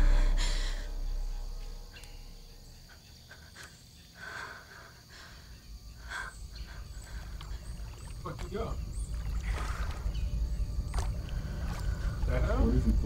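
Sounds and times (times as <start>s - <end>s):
low dark music swell: 0.0s - 3.4s
insect chirring: 0.0s - 13.0s.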